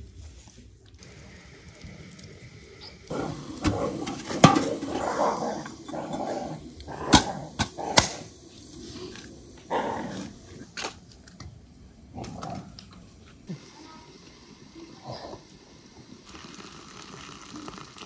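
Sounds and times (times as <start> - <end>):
metallic clanks of samovar: 3.6 - 8.2.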